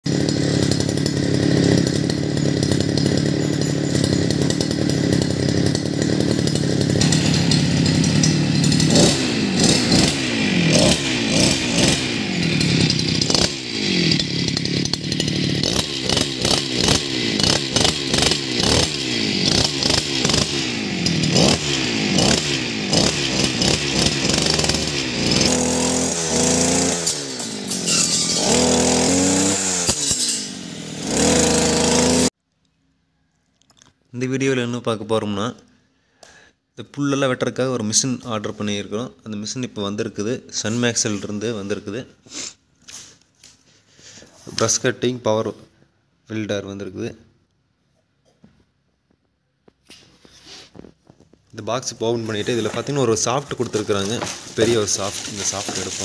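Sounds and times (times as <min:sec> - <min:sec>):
brush cutter engine revving: 0:00.1 - 0:32.3, 0:50.5 - 0:56.0.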